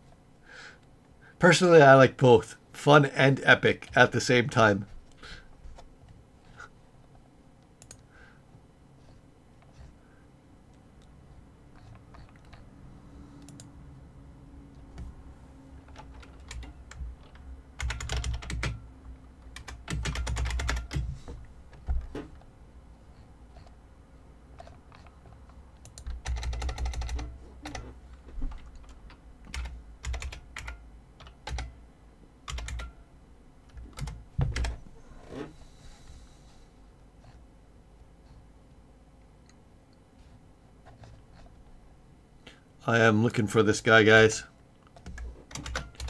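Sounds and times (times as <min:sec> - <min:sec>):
typing on computer keyboard: 0:15.8 - 0:18.8, 0:19.4 - 0:21.1, 0:25.8 - 0:27.8, 0:28.5 - 0:31.8, 0:32.5 - 0:33.0, 0:33.9 - 0:34.8, 0:45.0 - 0:46.0.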